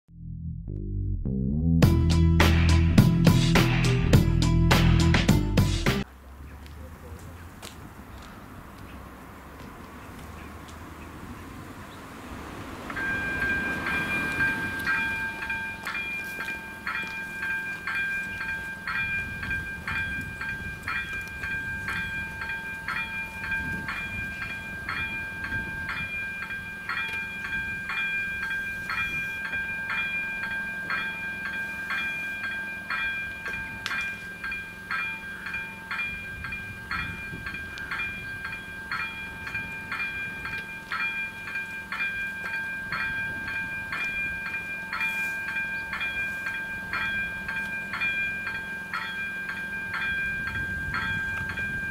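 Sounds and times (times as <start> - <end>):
level crossing warning bell: 12.3 - 51.9.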